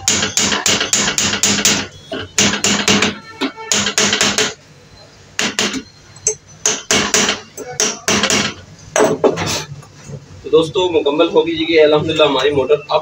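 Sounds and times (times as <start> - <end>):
hammer striking metal: 0.0 - 4.6, 5.4 - 9.3.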